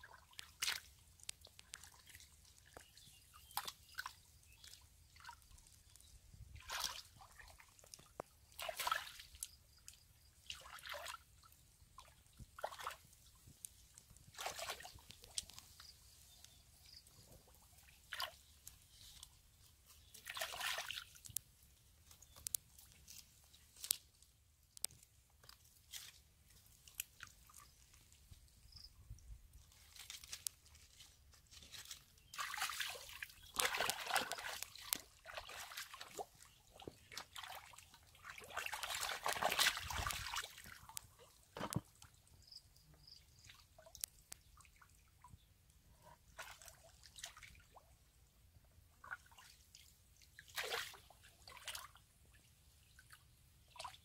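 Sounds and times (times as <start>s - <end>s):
sloshing and squelching in mud: 0.0s - 16.8s, 19.8s - 21.4s, 29.7s - 42.0s, 49.0s - 52.2s.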